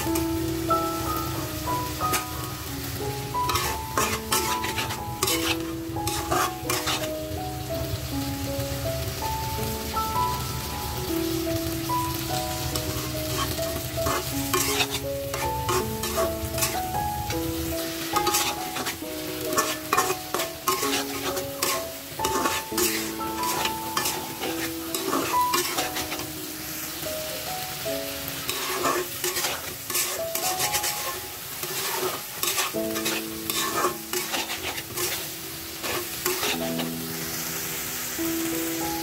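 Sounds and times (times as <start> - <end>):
food sizzling: 0.0 - 39.0
soft background melody: 0.0 - 39.0
metal spatula scraping pan: 3.4 - 7.1, 12.8 - 16.9, 18.2 - 26.3, 28.4 - 37.0.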